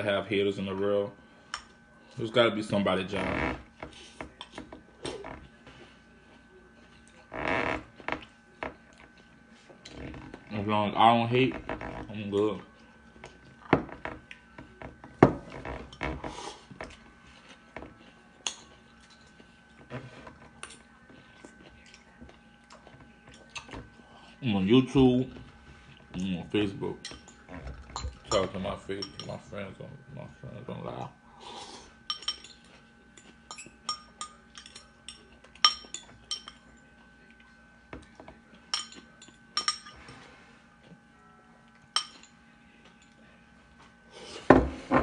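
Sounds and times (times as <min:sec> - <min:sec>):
fork clinking against ceramic bowl: 0:32.1 - 0:36.7, 0:38.7 - 0:40.0, 0:42.0 - 0:42.4.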